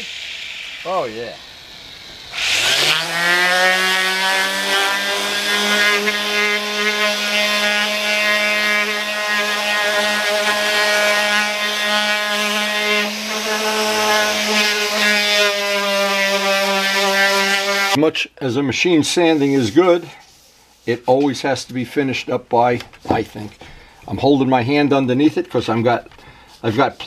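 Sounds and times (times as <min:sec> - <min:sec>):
orbital sander running: 0:00.0 - 0:18.0.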